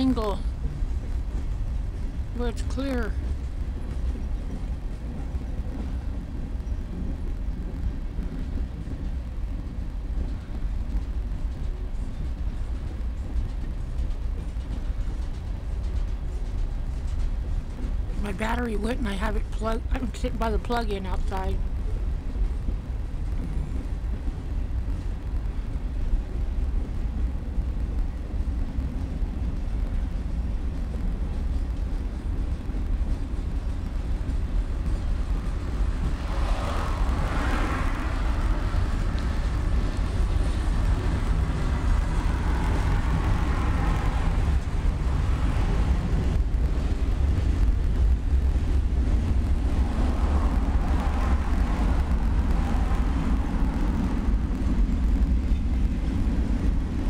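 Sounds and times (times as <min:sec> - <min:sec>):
freight train rumbling past: 0:00.0 - 0:57.0.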